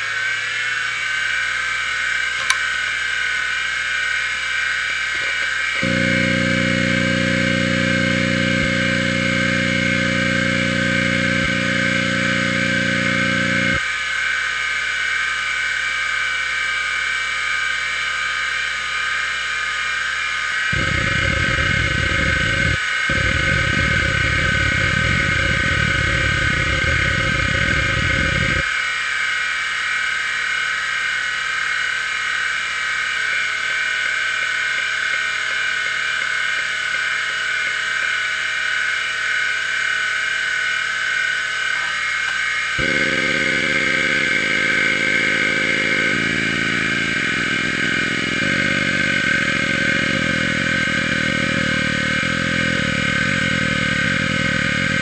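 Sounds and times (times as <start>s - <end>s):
hard drive head buzz: 0.0s - 13.9s, 20.0s - 28.8s, 30.6s - 55.0s
hard drive whine: 0.0s - 55.0s
hard drive heads seeking: 5.2s - 13.8s.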